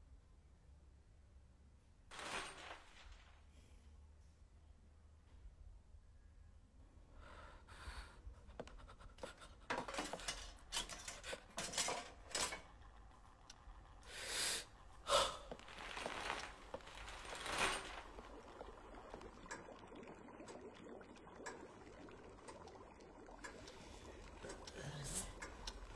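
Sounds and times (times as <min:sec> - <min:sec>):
woman breathing heavily and gasping: 0:07.2 - 0:09.7, 0:14.0 - 0:15.6.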